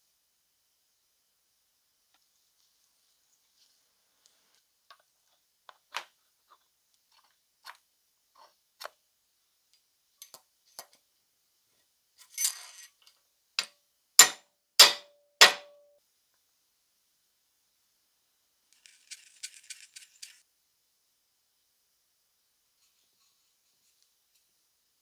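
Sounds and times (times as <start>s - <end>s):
metal scrape: 12.2s - 13.1s
hammer blows on metal: 14.2s - 15.9s.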